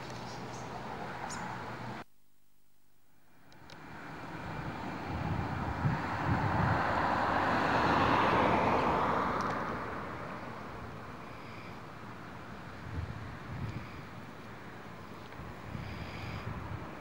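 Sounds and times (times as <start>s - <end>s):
vehicle passing: 3.8s - 11.3s.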